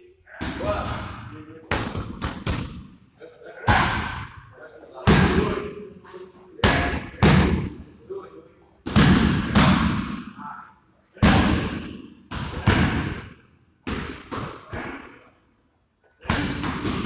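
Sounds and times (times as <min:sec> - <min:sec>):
punches and kicks on pads: 0:06.6 - 0:07.7, 0:08.9 - 0:10.3, 0:11.2 - 0:15.1, 0:16.2 - 0:17.0.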